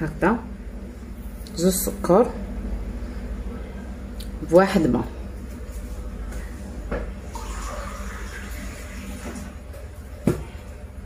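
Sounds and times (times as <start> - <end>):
water running from a tap: 7.3 - 9.6.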